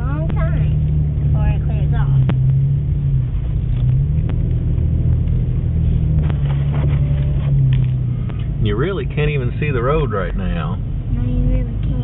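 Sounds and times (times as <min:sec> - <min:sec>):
engine low drone: 0:00.0 - 0:12.0.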